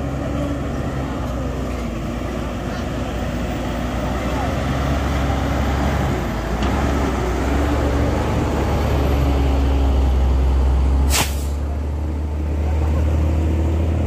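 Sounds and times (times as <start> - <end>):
truck diesel engine droning: 0.0 - 14.0
air brakes hissing: 11.1 - 11.6.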